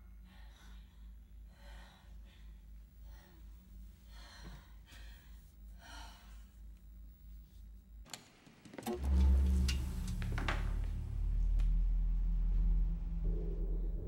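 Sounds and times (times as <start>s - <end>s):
low pulsing hum: 8.9s - 14.0s.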